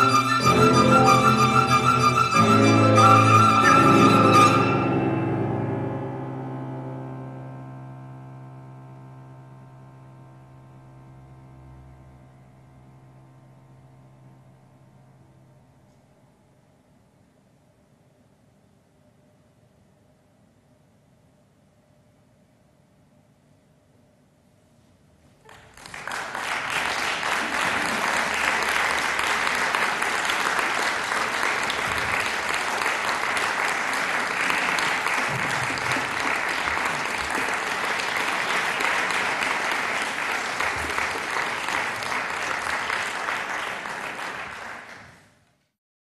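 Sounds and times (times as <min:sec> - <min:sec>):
audience applauding: 0:25.4 - 0:45.4.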